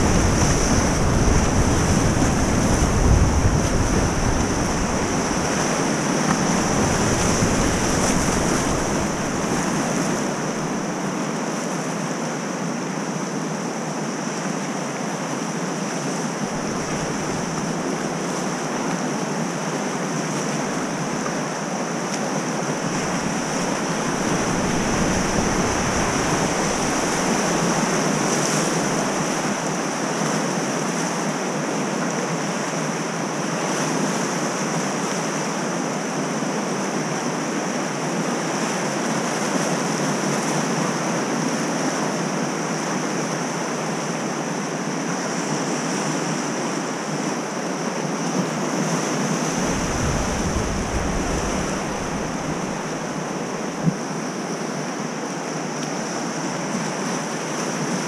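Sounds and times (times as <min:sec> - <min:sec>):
wind buffeting microphone: 0:00.0 - 0:10.9, 0:22.7 - 0:29.4, 0:49.4 - 0:54.1
whitewater rushing: 0:00.0 - 0:58.0.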